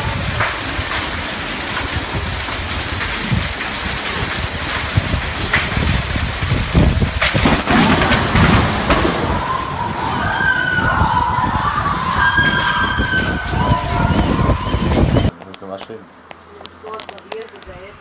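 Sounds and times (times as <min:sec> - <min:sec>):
heavy rain pouring: 0:00.0 - 0:15.3
low rumbling thunder: 0:00.0 - 0:15.3
sharp thunder cracks: 0:00.0 - 0:15.3
wavering siren: 0:09.4 - 0:15.3.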